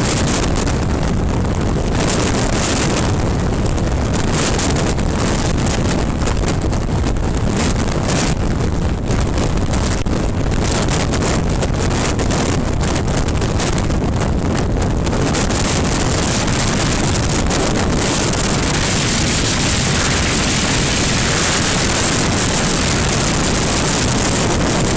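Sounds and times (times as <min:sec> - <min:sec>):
motorcycle cruising: 0:00.0 - 0:24.9
wind rush over microphone: 0:00.0 - 0:24.9.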